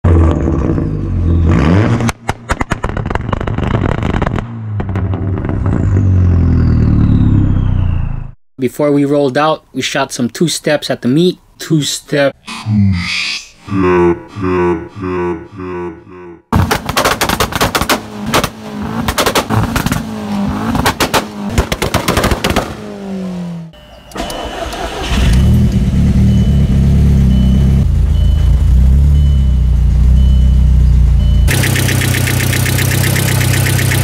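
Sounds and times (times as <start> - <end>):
exhaust bangs and pops: 1.5 - 6.9, 16.5 - 22.9
car engine droning: 4.4 - 8.4, 22.5 - 34.0
high beeps: 30.2 - 34.0
harsh engine ticking: 31.4 - 34.0.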